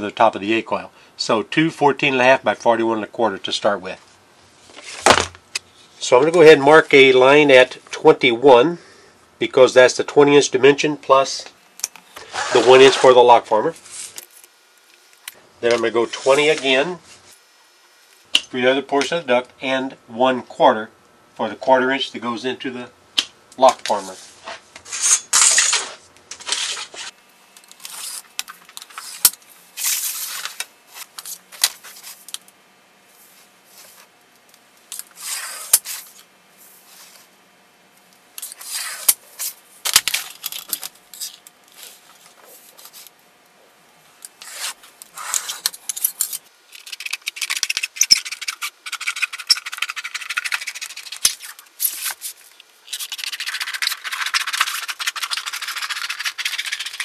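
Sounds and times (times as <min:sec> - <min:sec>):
scribe scraping sheet metal: 0:12.2 - 0:13.2, 0:24.4 - 0:27.2, 0:35.1 - 0:36.2, 0:38.4 - 0:39.6, 0:44.4 - 0:46.4, 0:47.5 - 0:57.0.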